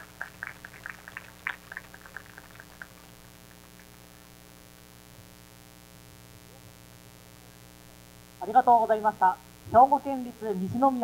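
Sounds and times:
audience hand claps: 0.0s - 4.3s
low steady hum: 0.0s - 11.0s.

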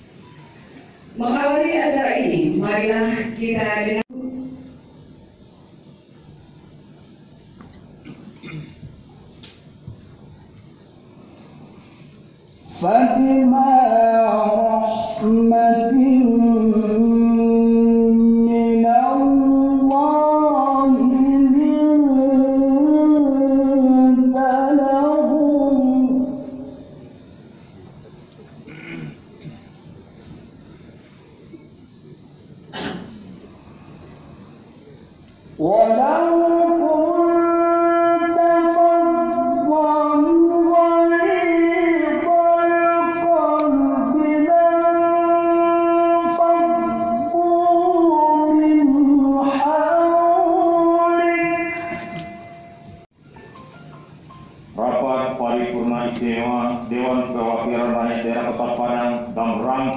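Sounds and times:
woman chanting melodically: 1.2s - 4.8s
man chanting recitation: 12.6s - 27.1s, 35.5s - 52.7s, 54.8s - 59.9s.

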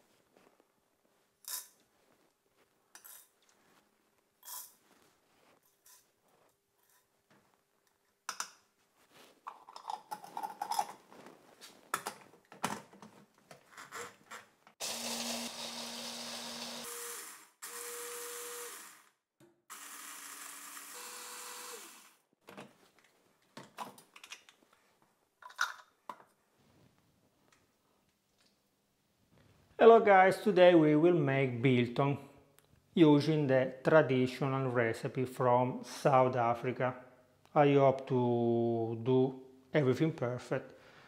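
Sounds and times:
spoon and plastic parts clinking: 9.5s - 11.1s, 25.4s - 26.3s
electric mini chopper grinding spices: 14.8s - 19.1s, 19.7s - 22.2s.

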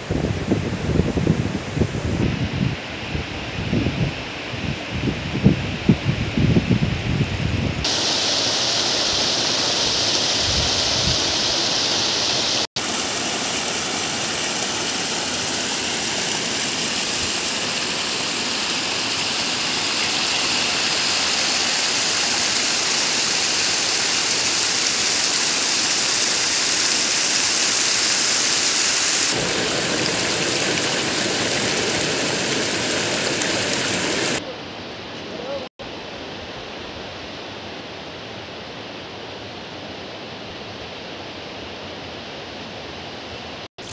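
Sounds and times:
stream rushing over stones: 7.8s - 34.4s.

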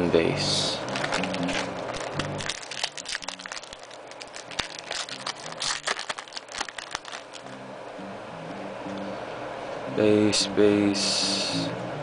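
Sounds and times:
foil wrapper crinkling and tearing: 0.8s - 7.5s.

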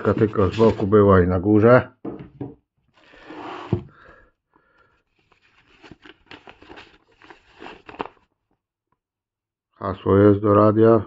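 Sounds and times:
paper rustling and crinkling: 0.0s - 1.0s, 5.1s - 8.3s
knock: 2.0s - 2.6s.

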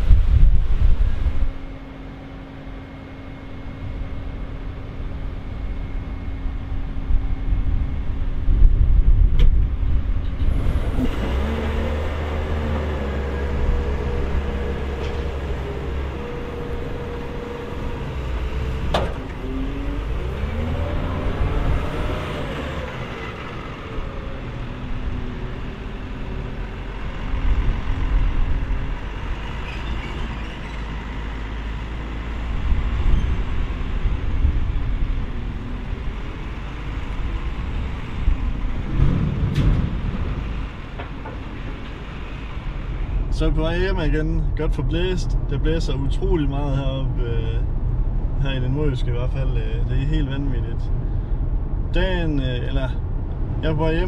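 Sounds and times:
wheel loader diesel engine revving: 10.2s - 44.2s.

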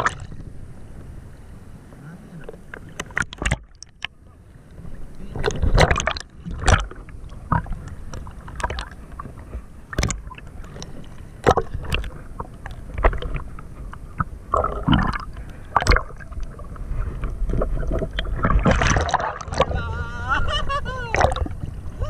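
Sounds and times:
seawater sloshing and splashing: 0.0s - 0.4s, 4.8s - 22.0s.

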